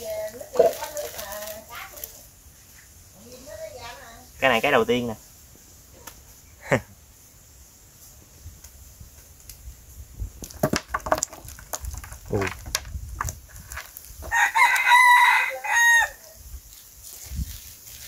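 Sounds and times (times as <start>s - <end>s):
rooster crowing: 14.3s - 16.4s.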